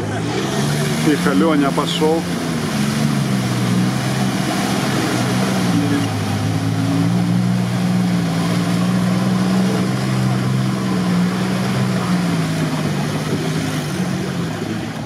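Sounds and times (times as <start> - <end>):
engine running under load: 0.0 - 15.0
wheels splashing in mud: 0.0 - 15.0.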